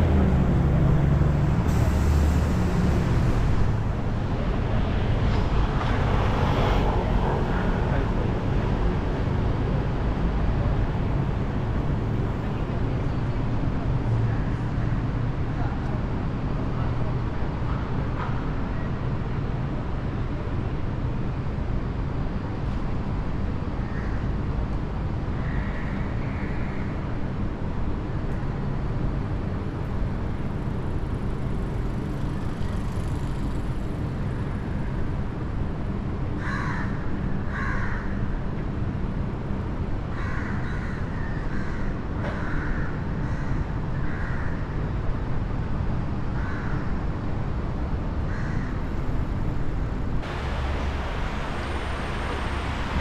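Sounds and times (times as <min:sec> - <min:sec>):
hum of city traffic: 0:00.0 - 0:53.0
crow cawing: 0:36.4 - 0:38.1, 0:40.1 - 0:44.7, 0:46.4 - 0:46.9, 0:48.3 - 0:48.8.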